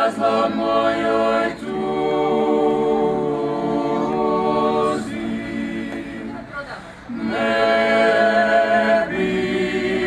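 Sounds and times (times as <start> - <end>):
men singing a cappella in harmony: 0.0 - 6.5, 7.1 - 10.0.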